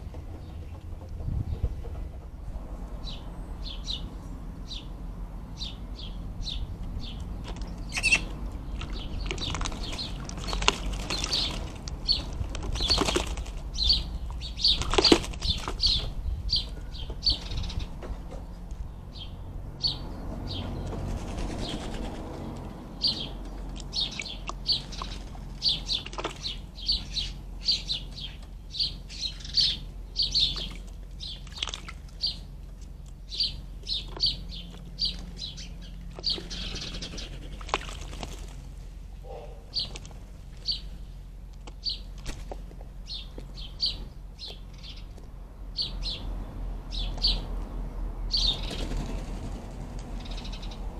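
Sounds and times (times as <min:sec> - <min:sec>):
birds chirping: 0:00.0 - 0:50.9
bird splashing in bird bath: 0:07.3 - 0:13.8, 0:14.6 - 0:15.9, 0:23.7 - 0:27.0, 0:30.4 - 0:32.8, 0:36.1 - 0:38.8.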